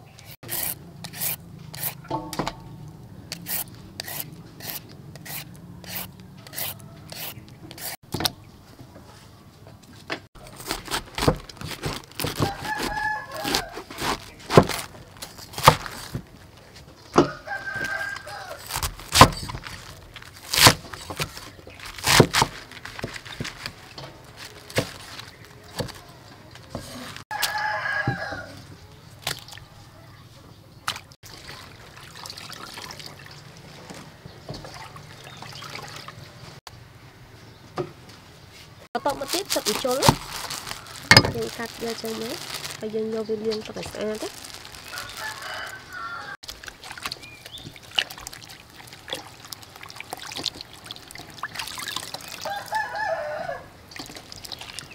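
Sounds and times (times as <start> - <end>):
rooster crowing: 6.2 - 7.4, 12.4 - 13.9, 17.2 - 18.7, 27.3 - 28.7, 44.8 - 46.4, 52.4 - 53.8.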